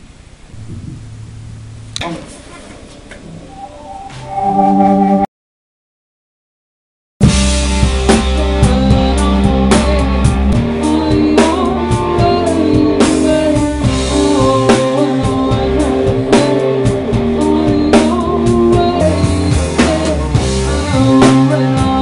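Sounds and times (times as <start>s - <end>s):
bass guitar: 0.4s - 2.3s, 7.2s - 22.0s
drum kit: 0.5s - 3.4s, 7.2s - 22.0s
electric guitar: 7.2s - 22.0s
woman singing: 8.2s - 22.0s.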